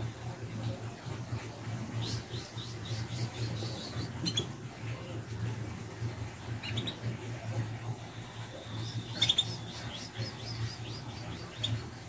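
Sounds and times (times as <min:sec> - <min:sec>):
canary chirping: 0:02.0 - 0:04.6, 0:06.6 - 0:07.1, 0:08.0 - 0:12.0.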